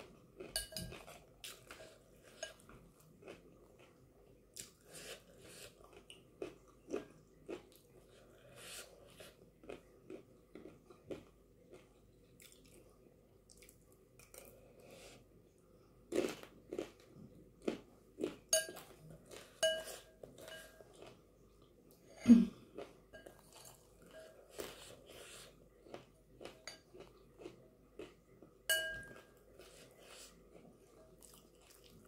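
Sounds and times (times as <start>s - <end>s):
chewing and crunching snack: 0.0s - 15.2s, 16.1s - 21.8s, 22.6s - 32.0s
spoon clinking against glass bowl: 0.6s - 1.0s, 18.6s - 18.8s, 19.6s - 20.8s, 28.7s - 29.3s.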